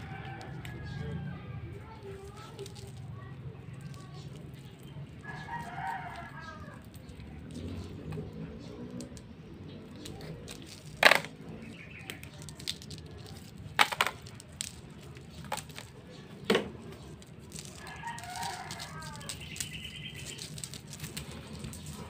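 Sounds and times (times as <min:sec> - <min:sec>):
rooster crowing: 0:17.8 - 0:19.4.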